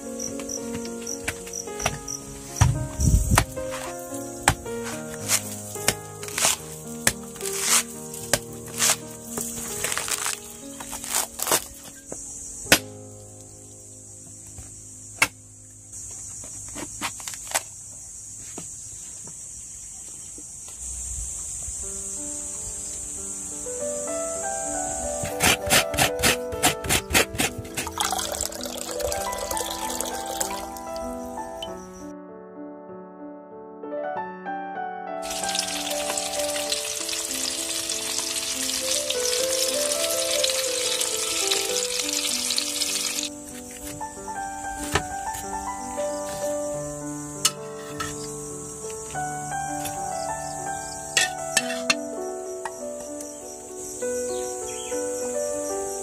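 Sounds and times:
piano music: 0.0 - 16.4, 21.7 - 56.0
high insect drone: 0.0 - 32.1, 35.2 - 56.0
coconut shell cracking: 5.2 - 11.8, 27.0 - 30.6
fish sizzling in a pan: 35.2 - 43.3.

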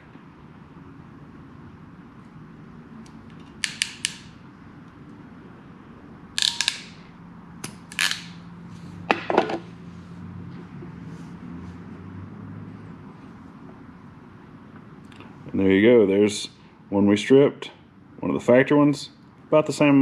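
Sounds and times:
crimping pliers clicking and snapping: 3.0 - 4.3, 6.4 - 7.0.

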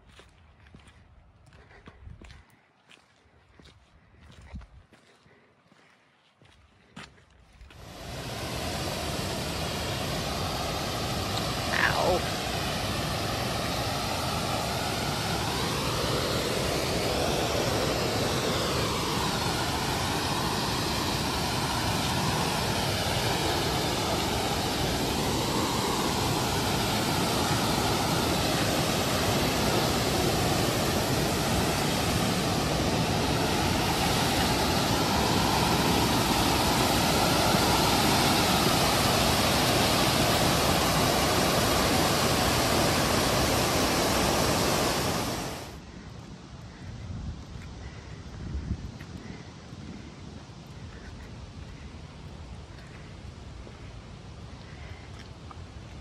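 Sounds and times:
creek rushing over rocks: 7.8 - 45.8.

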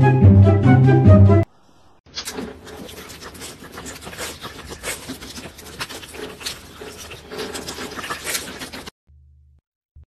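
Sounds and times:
dog licking and smacking: 2.2 - 8.9.

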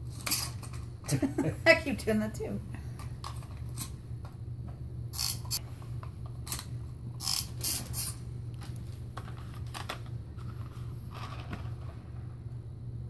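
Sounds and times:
steady low hum: 0.0 - 13.0
toy truck wheels whirring and clicking: 5.1 - 5.6, 6.5 - 8.2.

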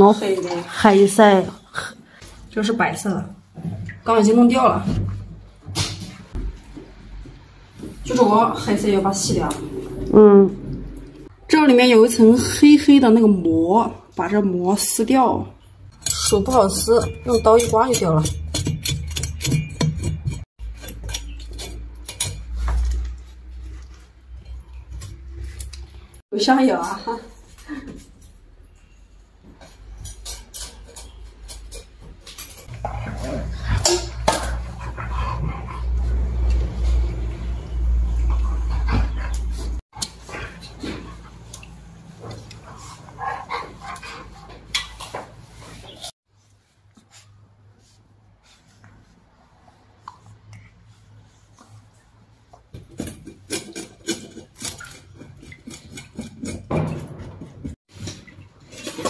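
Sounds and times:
knife scraping fish at sink: 16.0 - 23.2, 52.8 - 57.3
knife scraping fish belly: 53.0 - 56.7.

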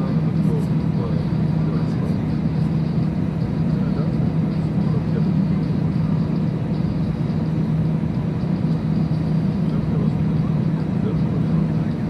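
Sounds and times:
cabin air system drone: 0.0 - 12.0
jet engines idling: 0.0 - 12.0.

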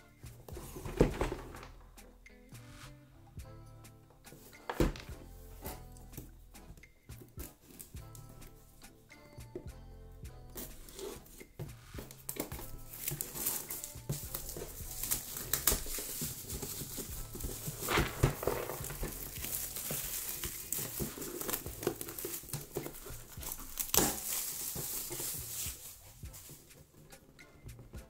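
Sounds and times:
plastic wrap crinkling and tearing: 12.2 - 26.5.

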